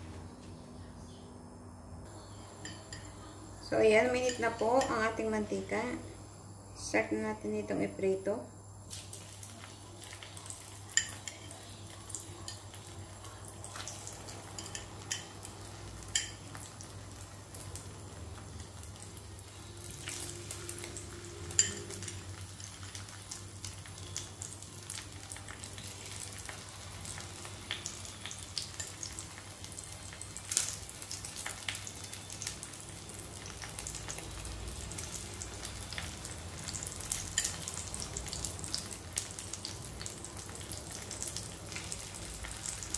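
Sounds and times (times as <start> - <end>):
meat sizzling in hot oil: 8.8 - 42.9
oil crackling and popping: 8.9 - 42.9.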